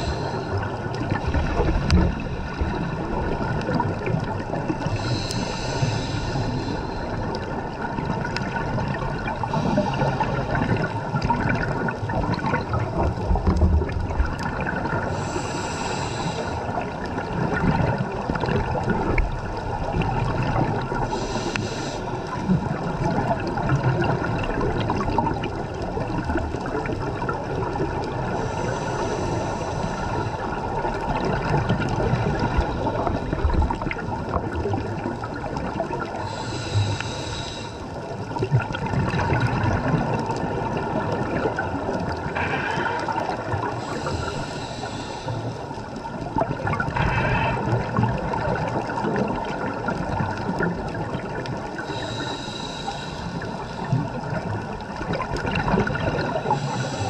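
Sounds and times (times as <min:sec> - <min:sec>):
diver breathing through regulator: 0:00.0 - 0:07.6, 0:09.4 - 0:11.2, 0:14.7 - 0:17.1, 0:20.4 - 0:22.5, 0:28.0 - 0:31.3, 0:36.1 - 0:38.2, 0:42.0 - 0:46.0, 0:46.8 - 0:49.7, 0:51.7 - 0:54.8, 0:55.6 - 0:57.0
bubbles gurgling: 0:00.0 - 0:15.4, 0:16.6 - 0:21.5, 0:22.1 - 0:28.6, 0:29.8 - 0:36.8, 0:37.9 - 0:52.3, 0:53.4 - 0:57.0
rush of water: 0:00.0 - 0:57.0.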